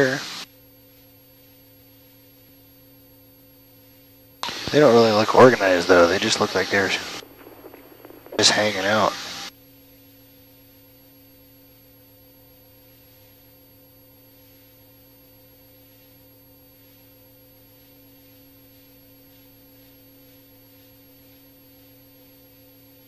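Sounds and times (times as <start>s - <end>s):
electrical hum: 0.0s - 0.4s, 4.4s - 9.5s
faint hiss: 0.0s - 0.4s, 4.4s - 9.5s.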